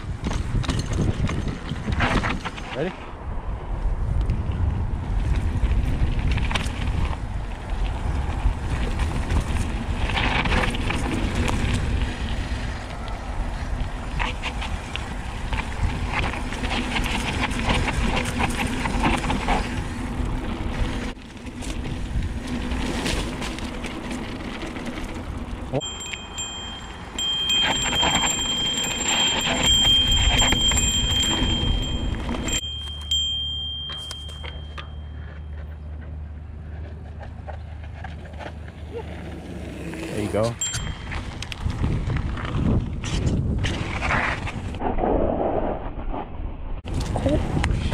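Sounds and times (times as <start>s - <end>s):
wind on microphone: 0.0s - 23.2s, 27.1s - 32.6s, 40.6s - 47.9s
bike tyres rumbling on dirt: 0.0s - 47.9s
high-pitched brake squeal: 25.8s - 33.1s.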